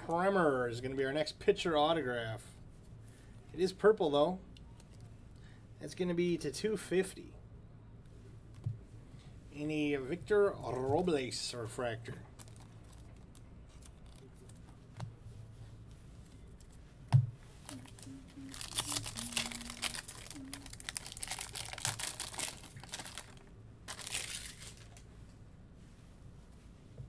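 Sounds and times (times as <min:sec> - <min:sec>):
wrapper tearing and crinkling: 0:12.3 - 0:14.3, 0:17.6 - 0:25.0.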